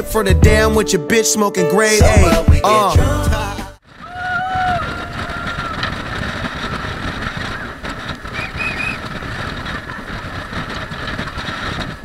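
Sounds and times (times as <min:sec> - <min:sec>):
wind and water rushing: 0:03.9 - 0:12.0
speedboat engine: 0:04.1 - 0:11.1.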